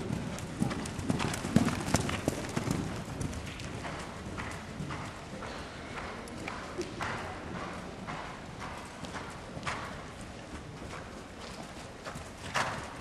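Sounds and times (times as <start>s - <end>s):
horse hoofbeats on soft ground: 0.0s - 5.2s.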